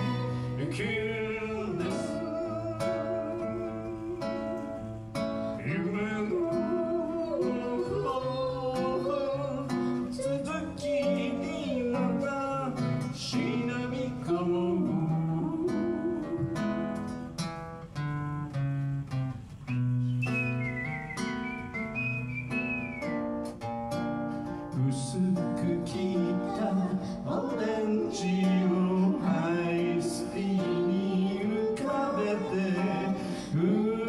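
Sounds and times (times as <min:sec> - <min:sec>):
man singing: 0:00.0 - 0:04.9, 0:05.5 - 0:16.9, 0:24.7 - 0:34.0
acoustic guitar strumming: 0:00.0 - 0:34.0.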